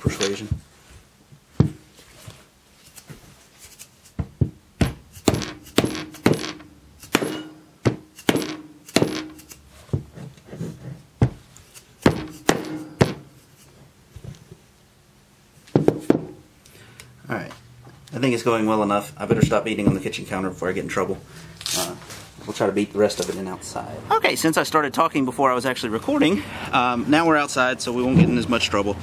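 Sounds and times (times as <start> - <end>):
hammer striking metal: 4.8 - 9.6, 12.0 - 13.3.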